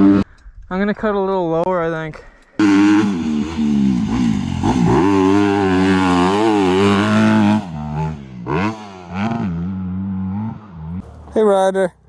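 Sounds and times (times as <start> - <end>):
dirt bike engine revving: 0.0 - 0.2, 2.6 - 11.1.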